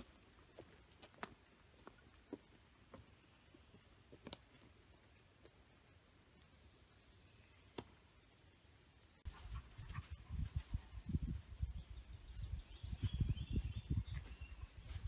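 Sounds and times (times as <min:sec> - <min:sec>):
small birds chirping: 0:00.0 - 0:15.0
wind rumble on microphone: 0:09.4 - 0:15.0.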